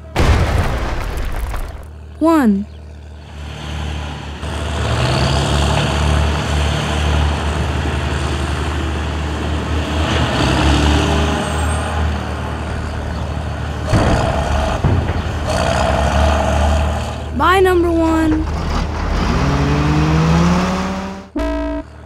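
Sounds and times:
load crashing into truck: 0.1 - 1.8, 13.9 - 15.8
heavy diesel engine rumbling: 1.8 - 22.0.

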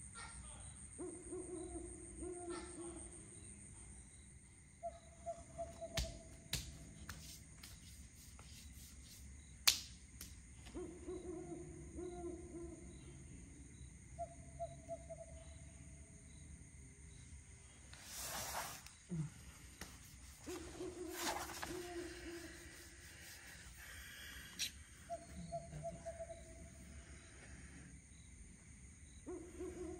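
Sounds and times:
rustle of movement: 19.7 - 23.8
low trilling animal calls: 20.5 - 26.8
faint regular chirping: 21.8 - 28.4.

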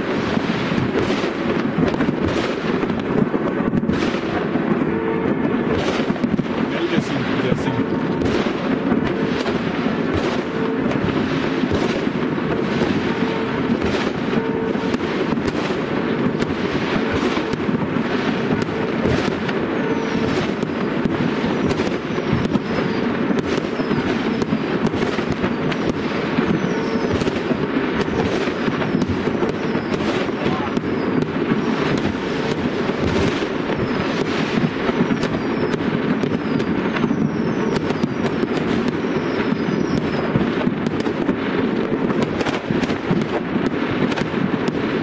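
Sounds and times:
fireworks bangs and crackles: 0.0 - 45.0.

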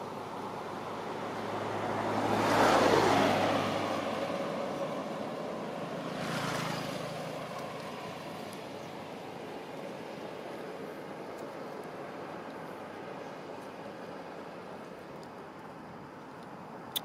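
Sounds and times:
vehicle passing by: 0.8 - 9.2.

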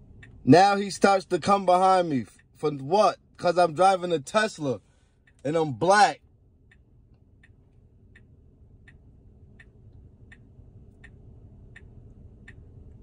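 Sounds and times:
low cabin hum: 0.0 - 13.0
turn signal ticking: 0.0 - 13.0.

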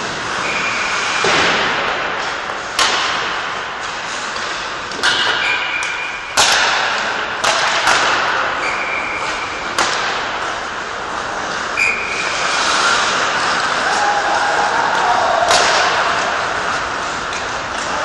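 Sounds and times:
skates scraping on ice: 0.0 - 5.6, 6.4 - 18.0
pucks banging off boards: 0.0 - 18.0
pucks hit by sticks: 0.0 - 18.0.

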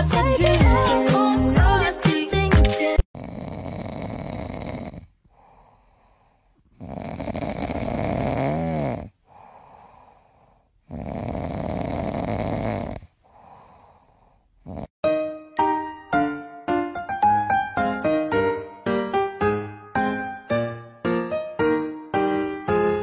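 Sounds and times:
puppy snoring: 3.2 - 5.6, 6.6 - 9.9, 10.8 - 13.8, 14.6 - 15.0
faint breathing: 4.8 - 7.0, 9.0 - 11.4, 13.0 - 14.9.

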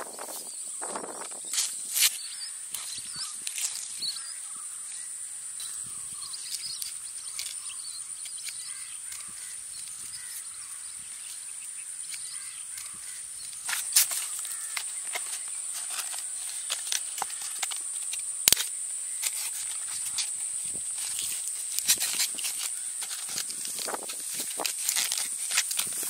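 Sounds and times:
dry palm leaf crackling: 0.0 - 4.3, 12.0 - 26.0
bird calls: 0.0 - 25.3
high-pitched insect drone: 0.0 - 26.0.

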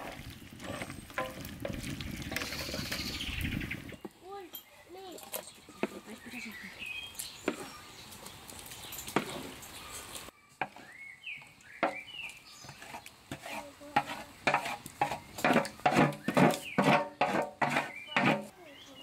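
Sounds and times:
wooden spatula scraping metal tray: 0.0 - 3.2, 11.8 - 18.5
bird chirping: 2.1 - 13.2, 15.2 - 17.2, 17.8 - 19.0.

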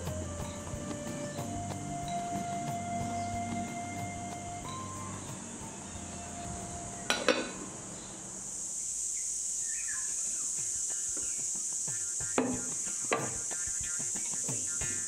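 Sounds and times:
steady high hiss: 0.0 - 15.0
crockery clinking on wooden table: 7.1 - 7.6.

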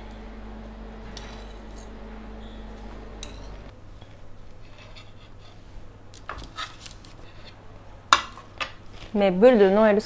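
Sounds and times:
low steady hum: 0.0 - 10.0.

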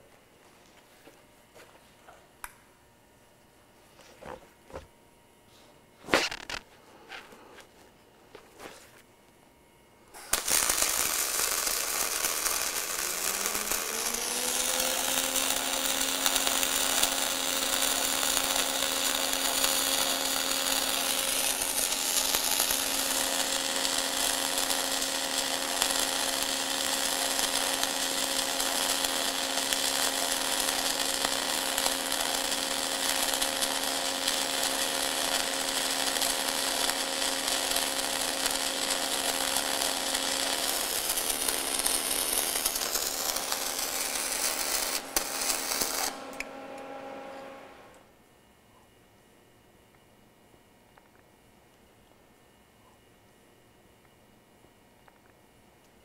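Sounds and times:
welding arc hissing and crackling: 6.2 - 6.7, 10.1 - 48.0
low hum: 40.7 - 48.2.

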